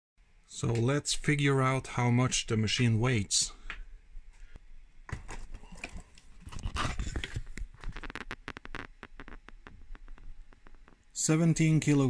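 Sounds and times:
sharp clicks: 0:07.5 - 0:11.1.

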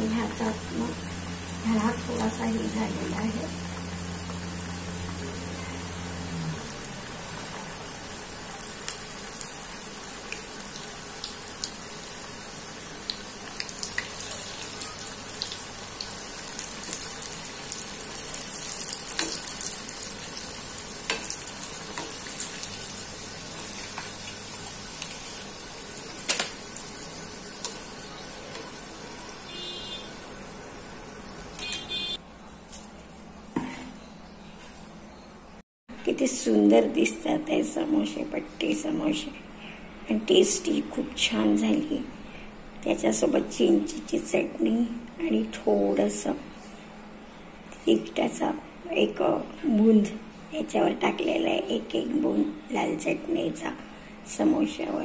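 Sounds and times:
food deep-frying in hot oil: 0:00.0 - 0:31.7.

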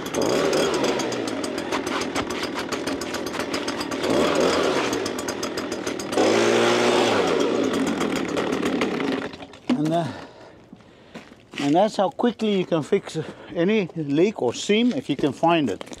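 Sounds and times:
gas leaf blower revving: 0:00.0 - 0:09.5.

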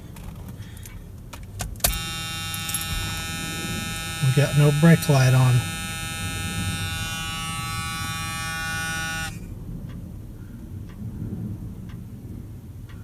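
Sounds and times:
dash warning buzzer: 0:01.8 - 0:09.5
faint ticks: 0:10.9 - 0:12.0.

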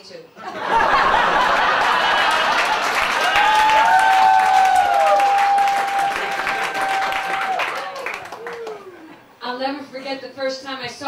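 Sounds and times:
audience clapping: 0:01.0 - 0:09.2.

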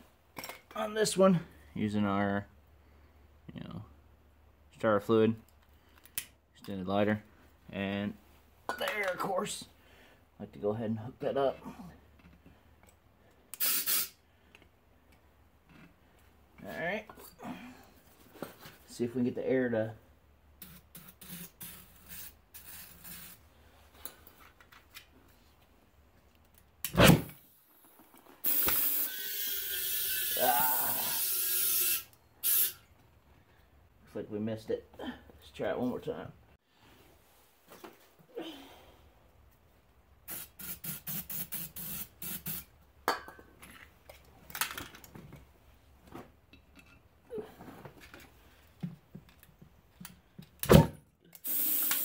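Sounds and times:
compressed air hissing: 0:13.6 - 0:14.2, 0:51.4 - 0:52.0
aerosol spray hisses: 0:51.4 - 0:52.0.

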